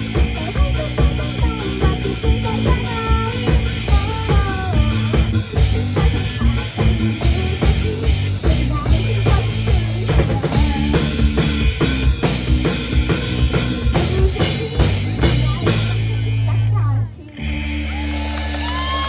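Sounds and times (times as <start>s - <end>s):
drum kit beat: 0.0s - 19.0s
live rock band instrumental: 0.0s - 19.0s.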